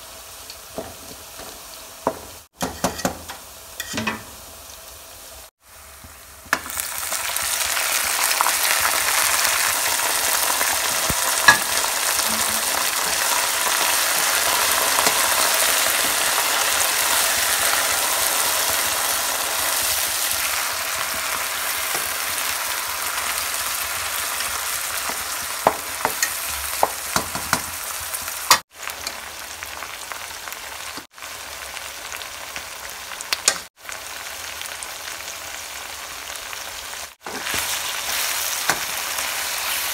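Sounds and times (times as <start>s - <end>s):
food sizzling in hot oil: 0.0s - 39.9s
wooden spatula knocking pan: 0.8s - 3.3s, 25.0s - 27.7s.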